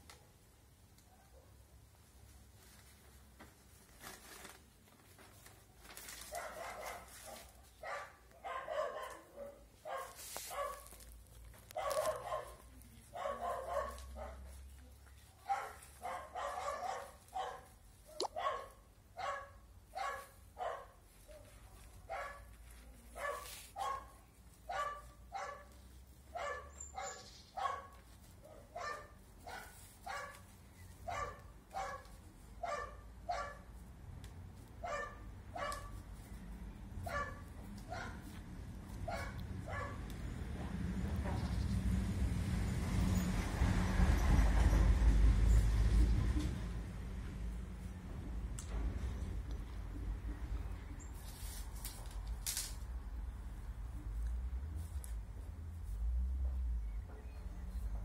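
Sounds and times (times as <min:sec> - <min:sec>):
dog barking: 0:06.3 - 0:11.1, 0:11.7 - 0:14.6, 0:15.4 - 0:22.5, 0:23.1 - 0:30.4, 0:31.0 - 0:33.7, 0:34.8 - 0:36.0, 0:37.0 - 0:38.3, 0:39.0 - 0:40.1.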